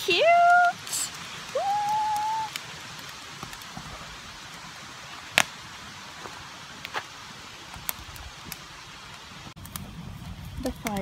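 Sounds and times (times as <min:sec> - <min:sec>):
campfire crackling: 0:00.0 - 0:11.0
steady hiss of fire: 0:00.0 - 0:11.0.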